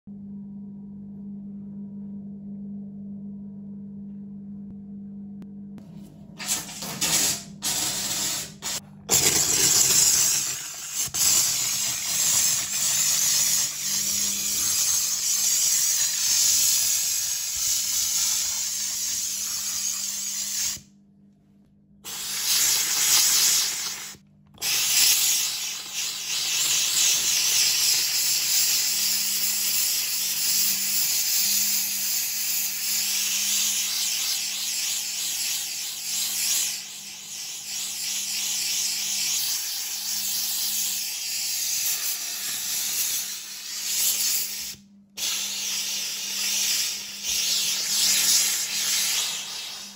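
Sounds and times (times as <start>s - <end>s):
low steady hum: 0.1s - 9.2s, 44.6s - 45.2s
steam cleaner hissing: 6.4s - 20.8s, 22.0s - 49.9s.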